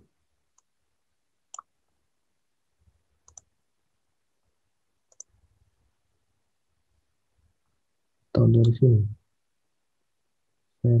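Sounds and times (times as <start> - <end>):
computer mouse clicks: 0.5 - 0.7, 1.5 - 1.7, 3.2 - 3.5, 5.1 - 5.4.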